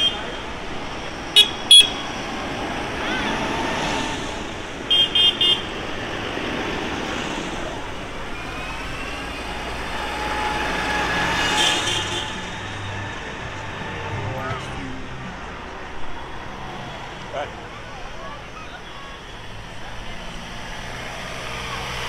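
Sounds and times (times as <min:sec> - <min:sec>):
tractors running: 0:00.0 - 0:22.0
horn tooting: 0:10.0 - 0:16.8.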